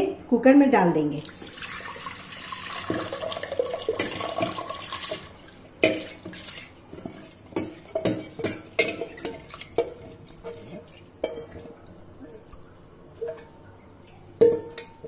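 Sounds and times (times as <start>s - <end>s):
lentils pouring into water: 1.3s - 5.1s
steel bowl clinking on pot: 2.8s - 11.7s, 14.4s - 15.0s.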